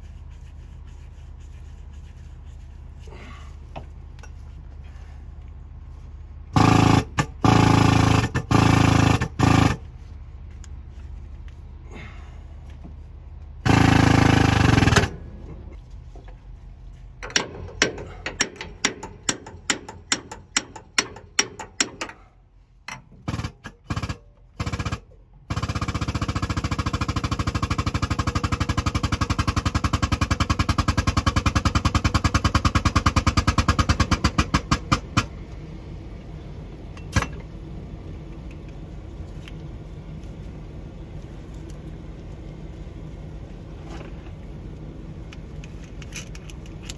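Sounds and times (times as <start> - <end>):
hydraulic pump running: 6.5 - 10.0, 13.6 - 15.5.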